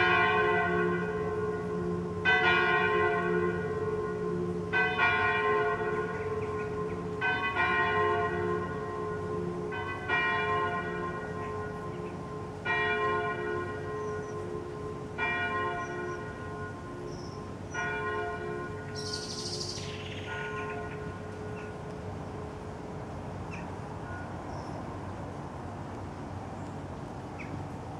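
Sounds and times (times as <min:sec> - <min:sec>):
church bells ringing: 0:00.0 - 0:23.2.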